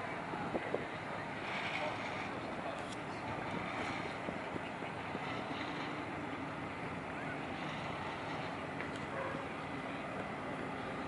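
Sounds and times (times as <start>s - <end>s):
boat diesel engine running: 0.0s - 11.0s.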